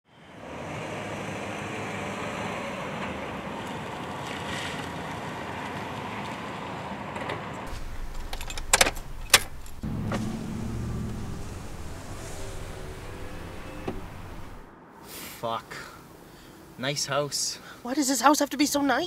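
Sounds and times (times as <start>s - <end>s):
car driving and pulling over: 0.3s - 14.9s
keys jangling in ignition: 7.8s - 9.8s.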